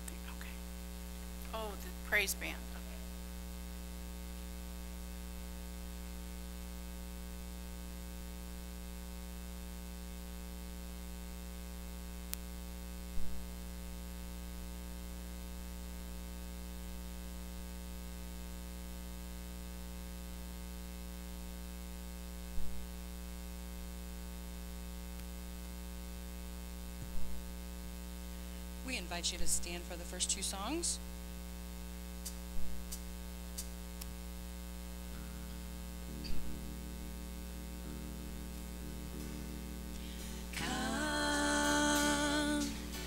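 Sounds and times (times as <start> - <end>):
electrical mains hum: 0.0 - 43.0
sound system hiss: 28.2 - 43.0
sharp click: 32.2 - 34.1.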